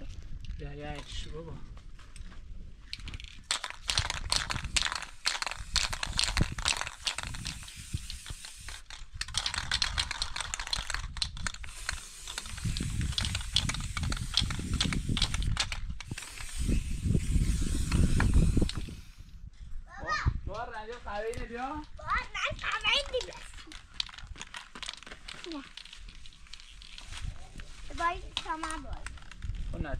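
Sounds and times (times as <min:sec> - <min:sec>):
spray can rattling: 0:02.9 - 0:19.2, 0:22.4 - 0:27.3
spray paint hissing: 0:03.0 - 0:19.4.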